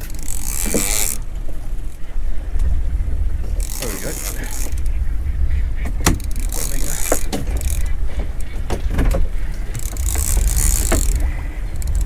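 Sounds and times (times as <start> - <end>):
sea noise: 0.0 - 12.0
wind rumbling on microphone: 0.0 - 12.0
knocks of tackle or hull: 5.8 - 6.4, 7.1 - 11.3.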